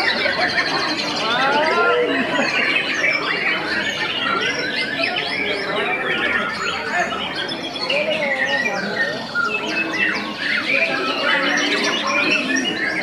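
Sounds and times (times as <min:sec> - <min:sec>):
birds singing whistled notes: 0:00.0 - 0:13.0.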